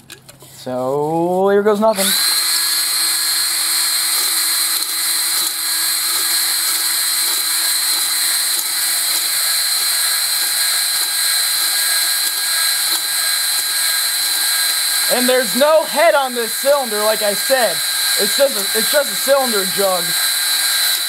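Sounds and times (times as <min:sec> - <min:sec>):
electric drill whining with ring: 0:01.9 - 0:21.0.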